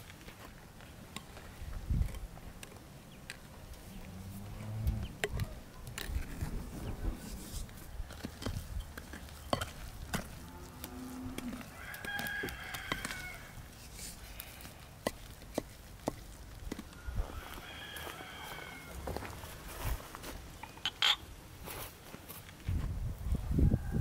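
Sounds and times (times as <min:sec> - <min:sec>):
farm animals calling: 0:16.9 - 0:19.4.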